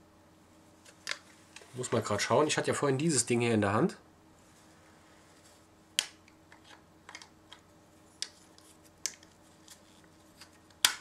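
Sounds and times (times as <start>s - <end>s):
soft rubbing: 4.3s - 5.8s.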